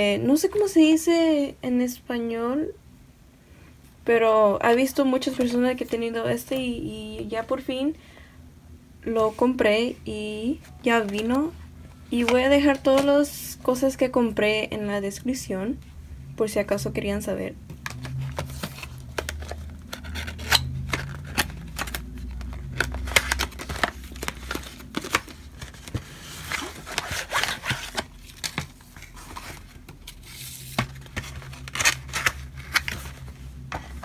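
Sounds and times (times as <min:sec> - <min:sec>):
plastic binder clicks and scrapes: 0:17.7 - 0:34.0
cardboard packaging rustling: 0:17.8 - 0:34.0.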